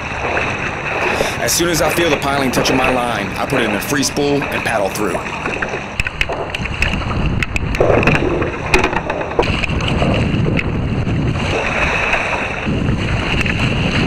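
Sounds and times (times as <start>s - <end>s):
paddle strokes splashing water: 0.0s - 14.0s
wind buffeting microphone: 0.0s - 14.0s
sharp clicks: 5.4s - 9.9s.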